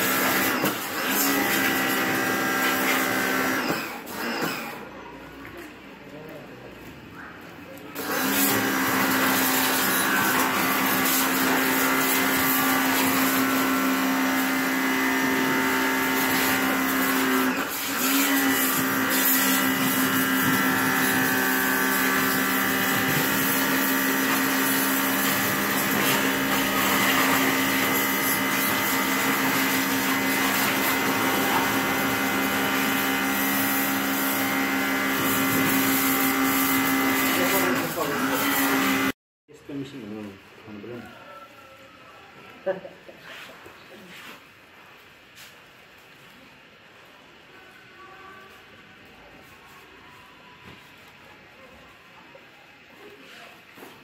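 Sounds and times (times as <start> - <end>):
pressure washer motor humming: 0.0 - 4.8, 8.0 - 39.2.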